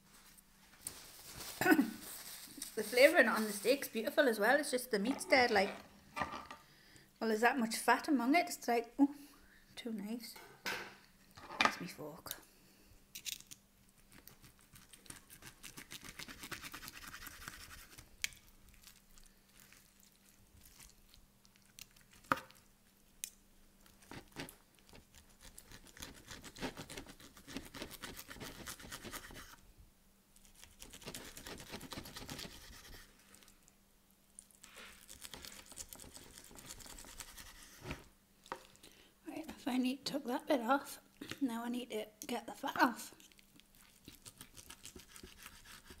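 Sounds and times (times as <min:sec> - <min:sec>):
knife sawing through steak: 0:30.8 - 0:33.1, 0:44.1 - 0:46.0.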